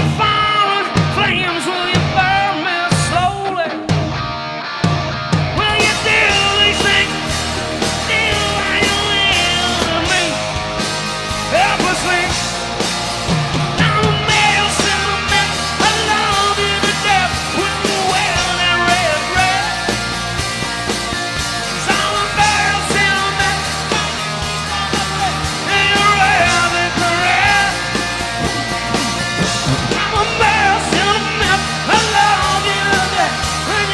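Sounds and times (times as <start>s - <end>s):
bass guitar: 0.0s - 33.9s
distorted electric guitars: 0.0s - 33.9s
drums: 0.0s - 33.9s
person singing: 5.6s - 10.6s, 13.8s - 20.1s, 21.8s - 33.9s.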